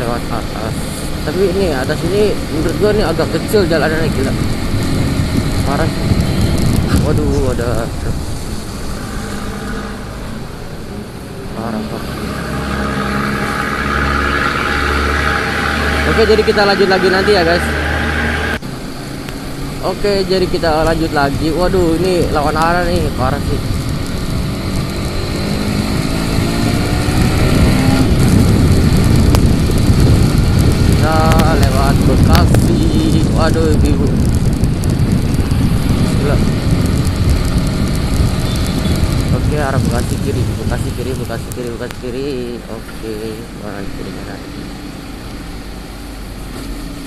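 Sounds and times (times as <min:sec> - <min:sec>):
motorcycle engine accelerating: 0:00.0 - 0:47.0
road and wind noise: 0:00.0 - 0:47.0
motorcycle engine running: 0:21.9 - 0:40.3.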